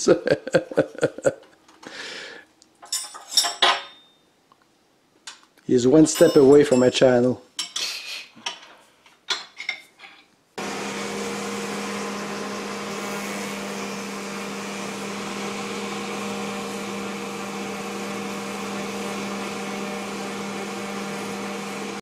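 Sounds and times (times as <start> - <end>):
wood router carving: 10.6 - 22.0.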